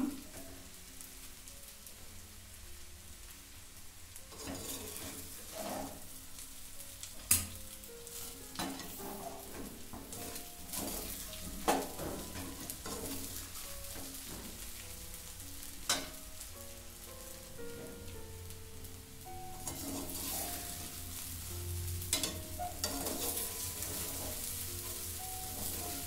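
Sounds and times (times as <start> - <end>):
tapioca pearls sizzling in pan: 0.0 - 26.0
rustle of pearls being stirred: 4.2 - 6.6, 7.8 - 16.6, 19.3 - 26.0.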